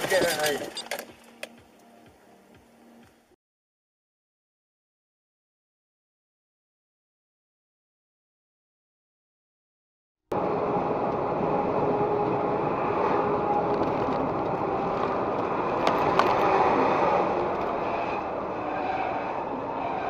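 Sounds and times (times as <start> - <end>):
truck engine and road noise: 0.0 - 3.3, 10.3 - 20.0.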